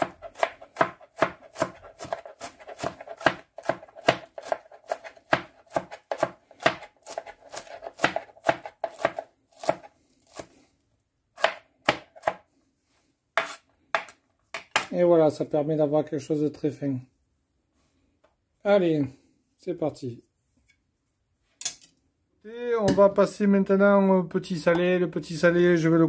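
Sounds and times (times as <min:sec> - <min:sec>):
knife chopping on plastic board: 0:00.0 - 0:10.5, 0:11.4 - 0:12.4, 0:13.4 - 0:14.9.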